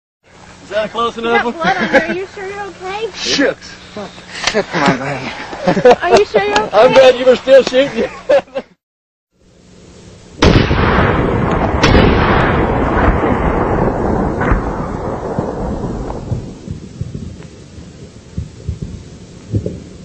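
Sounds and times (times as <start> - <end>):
slowed rifle shots booming: 10.4 - 17.4.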